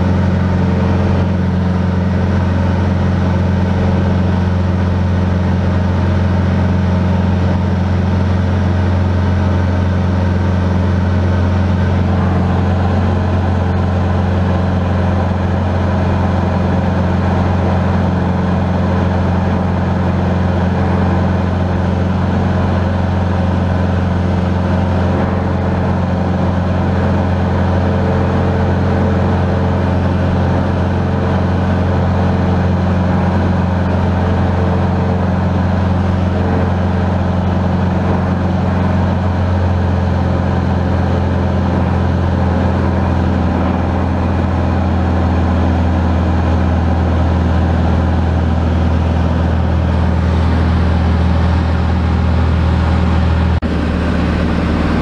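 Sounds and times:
airplane engine and propeller drone: 0.0 - 55.0.

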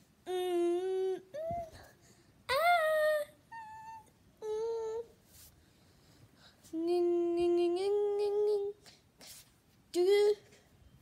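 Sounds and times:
high-pitched voice humming: 0.2 - 1.9, 2.5 - 5.2, 6.7 - 8.8.

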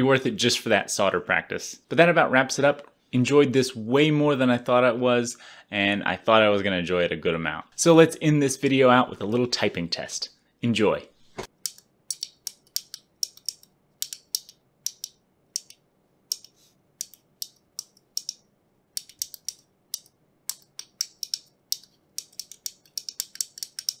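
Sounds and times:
mechanical keyboard typing: 19.0 - 24.0.

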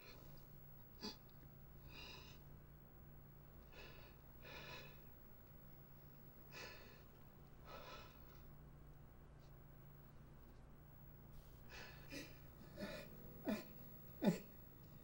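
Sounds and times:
low steady hum: 0.0 - 15.0
person breathing unevenly: 3.6 - 5.1, 6.5 - 8.5, 11.3 - 15.0.

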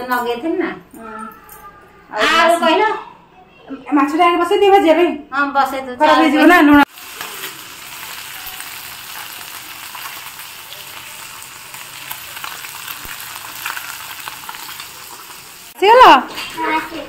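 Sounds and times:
fish sizzling in hot oil: 6.9 - 16.6.

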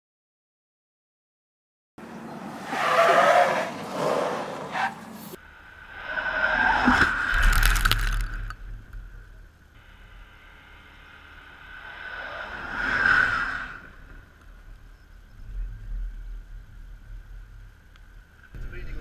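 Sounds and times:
vehicle passing: 2.0 - 6.8
low rumble: 5.4 - 19.0.

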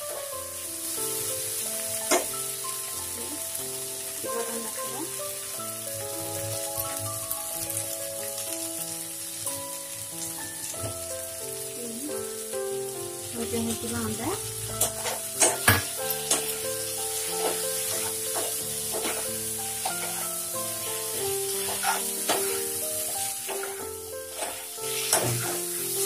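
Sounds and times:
food sizzling in a pan: 0.0 - 26.0
soft background music: 0.0 - 26.0
spatula scraping pan: 17.2 - 26.0.

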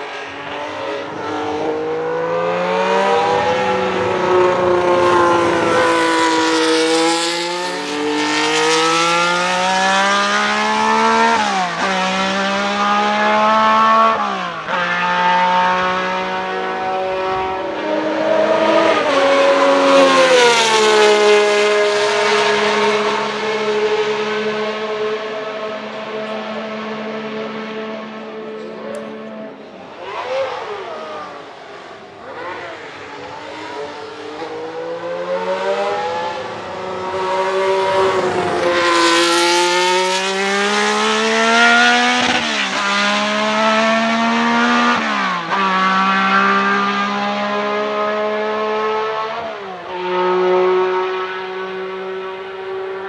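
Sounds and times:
race car engine passing: 0.0 - 53.0.

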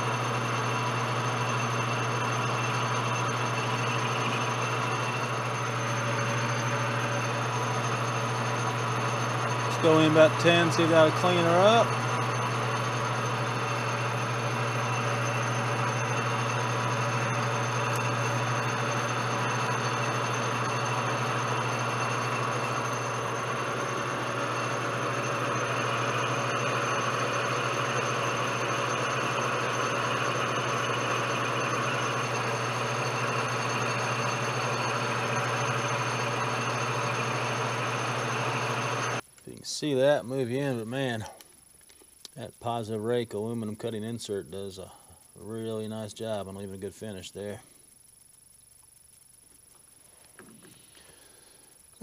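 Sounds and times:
lathe motor hum: 0.0 - 39.2.

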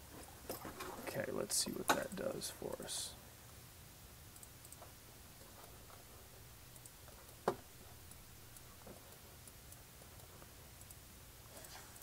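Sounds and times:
low room hum: 0.0 - 12.0
computer mouse clicks: 6.7 - 7.5.

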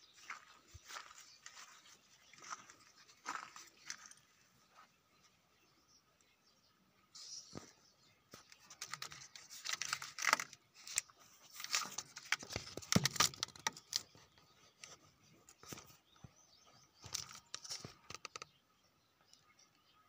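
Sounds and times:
rustling and clicking of handling: 8.3 - 16.4, 17.0 - 18.6.

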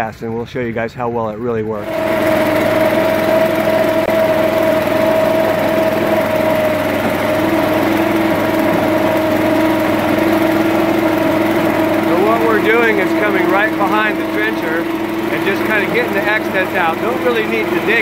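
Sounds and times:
small gasoline engine running: 1.8 - 18.0.

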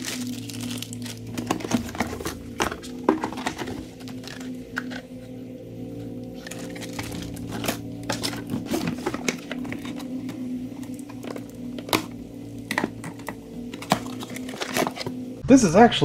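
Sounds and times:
cardboard packaging rustling: 0.0 - 5.3, 5.9 - 15.3.

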